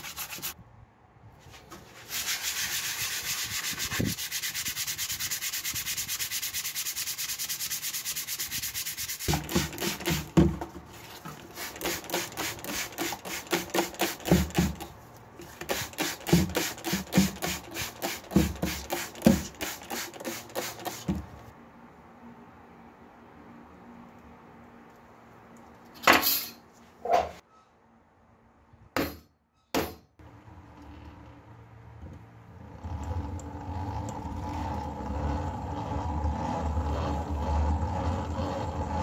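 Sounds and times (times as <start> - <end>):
sandpaper rubbing on steel blade: 0.0 - 0.6, 1.9 - 10.3, 11.5 - 14.8, 15.6 - 21.1.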